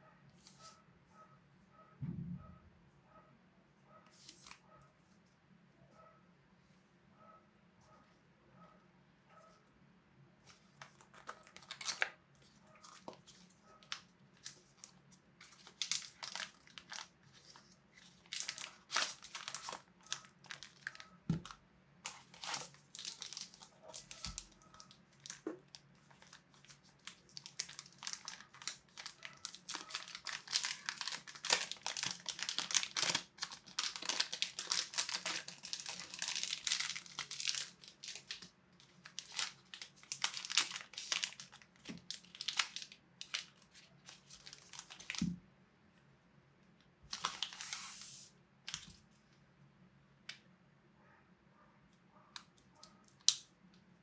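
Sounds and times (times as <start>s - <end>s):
plastic and paper packaging crinkling: 10.5s - 45.3s, 47.1s - 49.0s.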